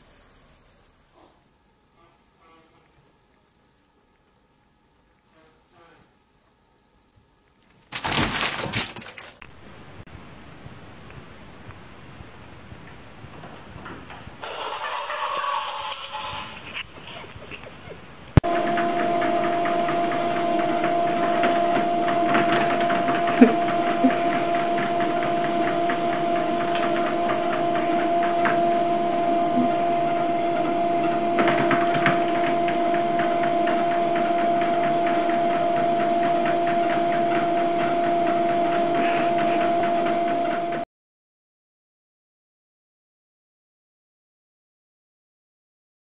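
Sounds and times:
treadmill belt ticking hiss: 18.4 - 40.8
treadmill motor hum: 18.4 - 40.8.

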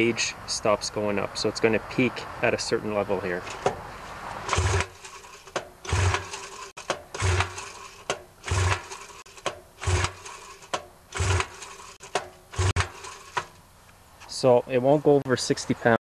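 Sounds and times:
recoil starter rope pulled: 4.3 - 13.6
outboard motor cranking over: 4.4 - 13.6.

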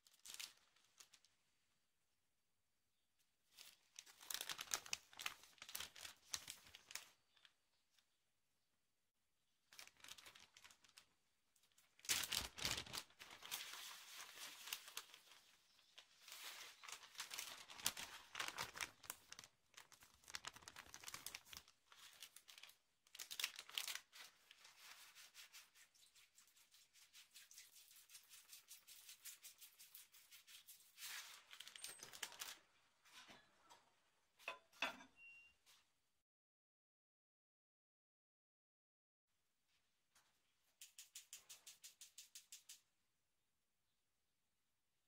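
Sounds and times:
plastic bag crinkling: 0.0 - 1.3, 3.5 - 7.5, 9.7 - 25.5, 30.9 - 32.7.

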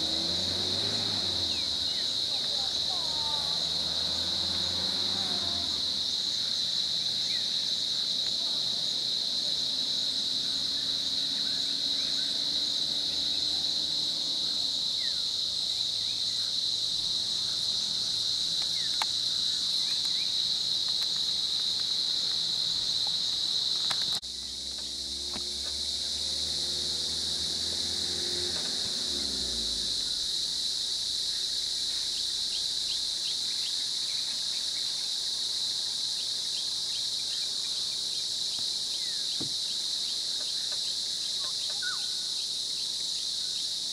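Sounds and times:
vehicle engine humming: 0.0 - 34.0
insects chorus: 0.0 - 43.9
faint bird chirps: 40.4 - 42.5.

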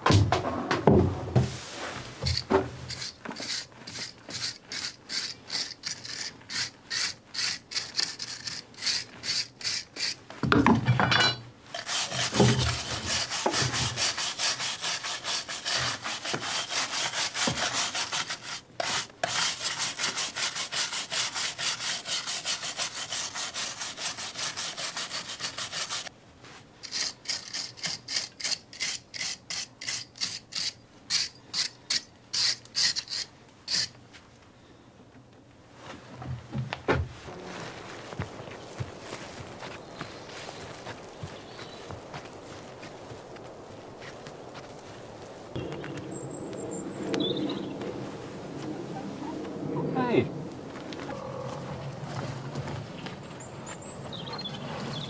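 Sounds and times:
hand tool scraping mortar: 2.2 - 10.3, 11.7 - 26.1, 26.8 - 34.0.

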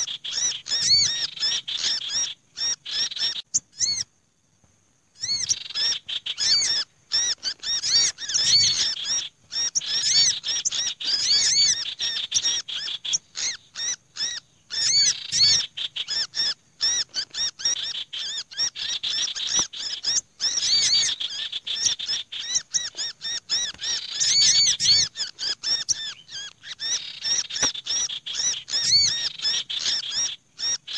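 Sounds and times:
small songbirds chirping: 0.0 - 30.9.

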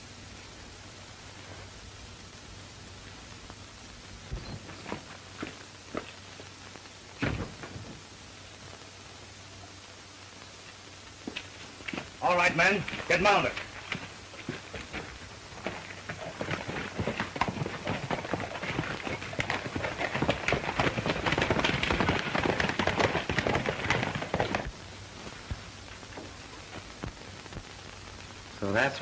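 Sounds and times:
old film soundtrack hiss: 0.0 - 29.0
horse hooves galloping: 2.9 - 8.9, 11.1 - 27.6.

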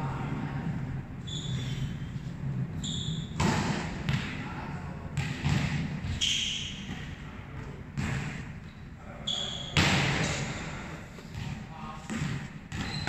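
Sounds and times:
volleyball thuds in echoing hall: 0.0 - 13.0
short high squeaks: 1.2 - 2.1, 2.8 - 3.4, 6.2 - 6.9, 9.2 - 9.8.

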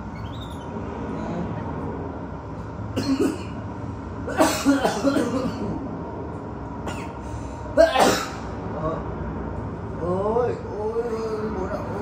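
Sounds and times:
cough-like voice burst: 3.0 - 3.6, 4.3 - 5.8, 7.8 - 8.4.

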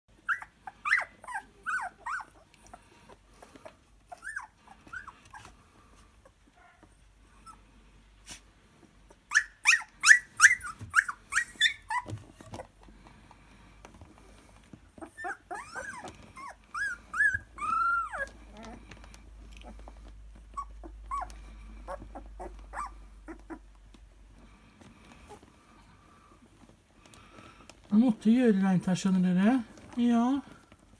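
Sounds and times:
puppies whining: 0.1 - 7.8, 9.0 - 27.7
puppies whimpering: 0.2 - 7.7, 9.1 - 12.9, 14.8 - 23.8
puppies yelping: 0.2 - 7.7, 9.1 - 12.9, 14.9 - 23.8.

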